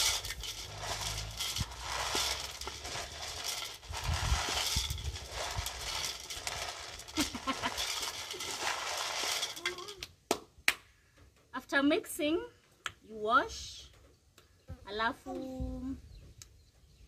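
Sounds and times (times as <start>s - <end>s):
grains rattling in metal pot: 0.0s - 10.0s.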